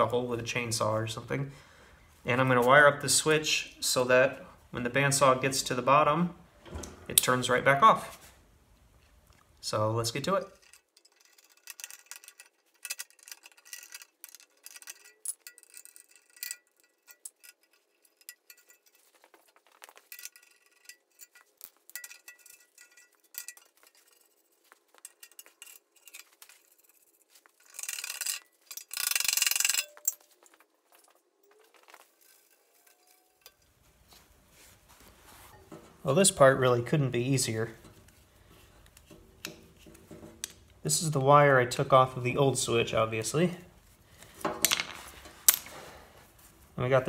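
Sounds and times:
metallic clinks and rattles: 10.2 - 36.1.

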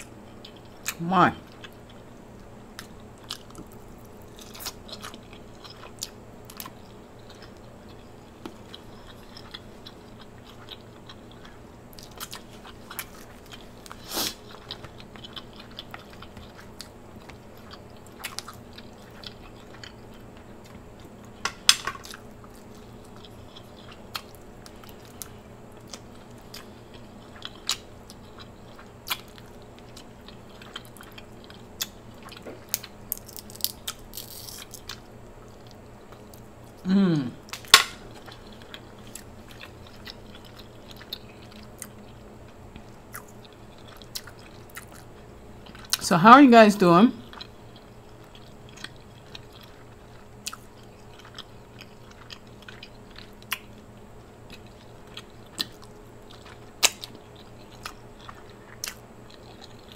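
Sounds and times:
wet chewing and biting: 37.4 - 46.0, 47.3 - 59.9.

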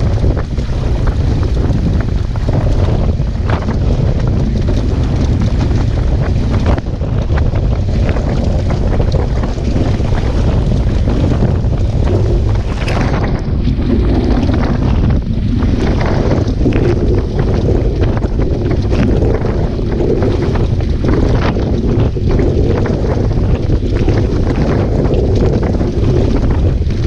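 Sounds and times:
water rushing against hull: 0.0 - 27.0
wind buffeting microphone: 0.0 - 27.0.

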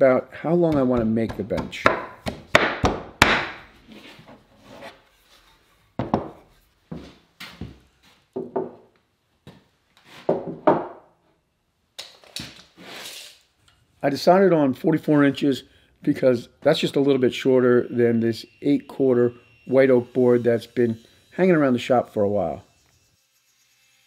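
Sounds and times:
fist pounding wooden frame: 0.7 - 3.6
wooden knocks and clunks: 6.0 - 6.4, 8.4 - 8.9, 10.3 - 11.1.

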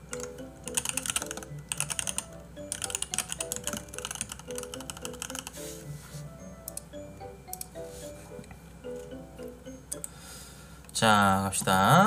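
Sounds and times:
background music with held notes: 0.0 - 12.0
fast keyboard typing: 0.1 - 5.6.

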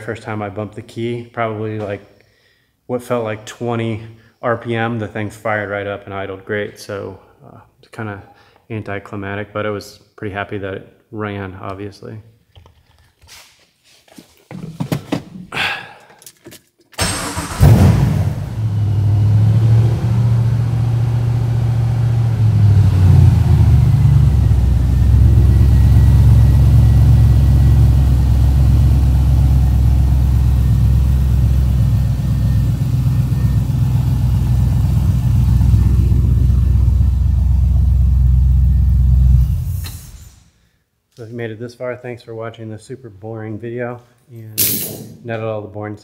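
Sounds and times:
car engine starting and idling: 17.0 - 40.4.

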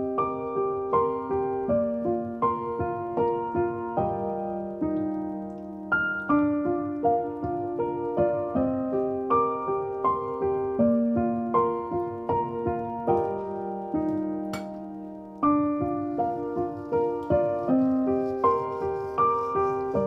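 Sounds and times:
gentle piano melody: 0.0 - 20.0.

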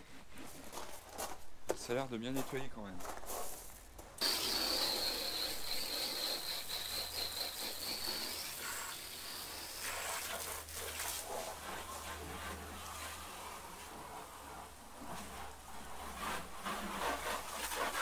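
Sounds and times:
high whistle from hose nozzle: 4.2 - 10.1
hose water spraying on camper: 4.2 - 18.0.

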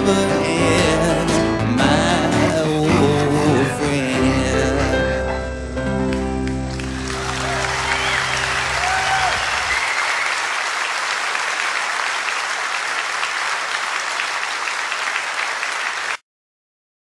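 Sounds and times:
audience applause: 6.4 - 16.2.

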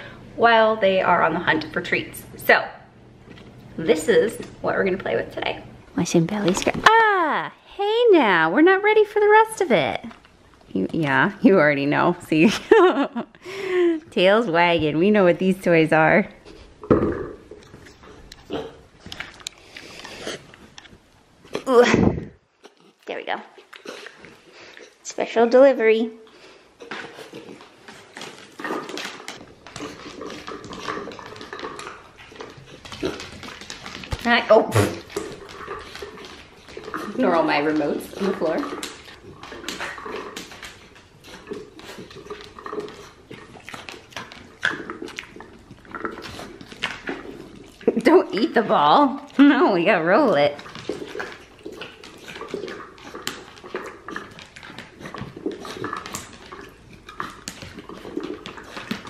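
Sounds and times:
ball rolling on wooden floor: 16.8 - 18.2.

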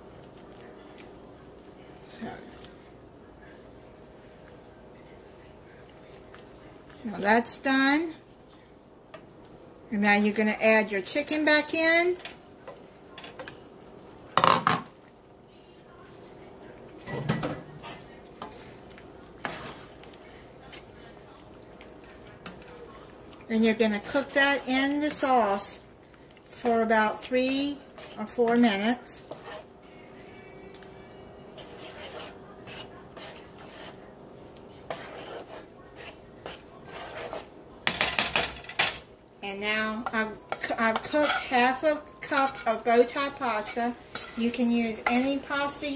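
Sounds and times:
spoon stirring thick sauce: 0.0 - 38.3, 39.3 - 45.9
spatula scraping in pan: 17.7 - 18.8, 19.4 - 20.9, 26.6 - 38.6, 40.0 - 45.9.

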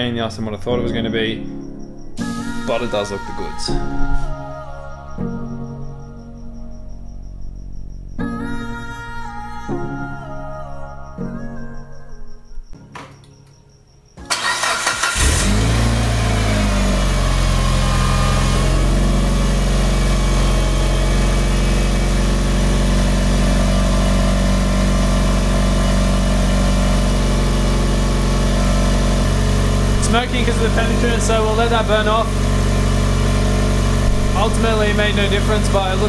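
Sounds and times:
starter cranking: 14.2 - 15.8
car engine idling: 14.3 - 36.0.

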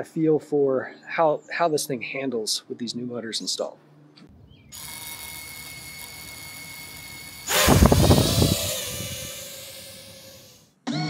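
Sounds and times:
drone buzzing whine lifting off: 4.4 - 10.7
drone motors whining: 4.6 - 10.7.

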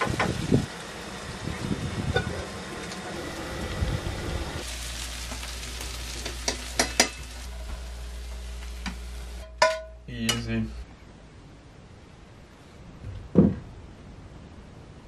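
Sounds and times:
food sizzling in a frying pan: 0.0 - 10.5.

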